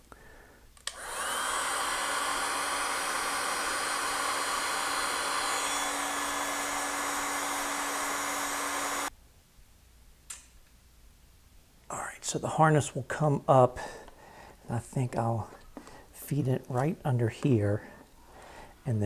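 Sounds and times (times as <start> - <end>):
heat gun switch click: 0.8 - 1.2
heat gun blowing with motor hum: 0.8 - 9.1.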